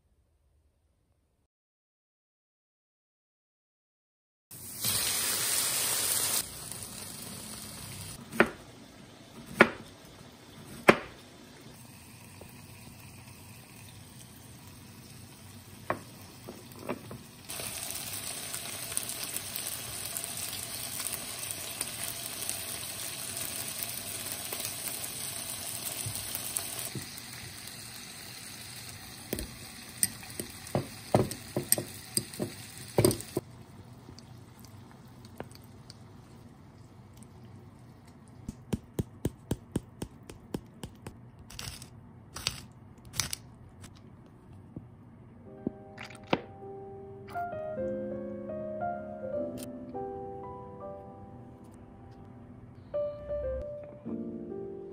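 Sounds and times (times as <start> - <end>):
chicken sizzling in frying pan: 4.6 - 8.2, 11.7 - 33.4.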